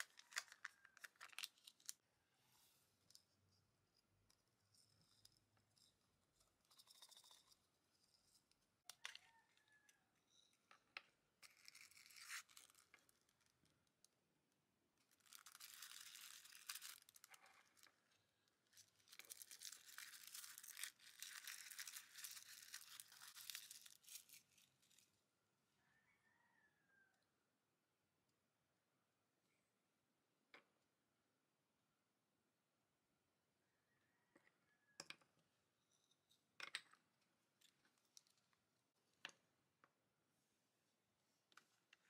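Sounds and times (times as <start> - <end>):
plastic wrapper crinkling and tearing: 0.0 - 2.0, 11.4 - 13.5, 15.0 - 17.9, 18.7 - 25.0.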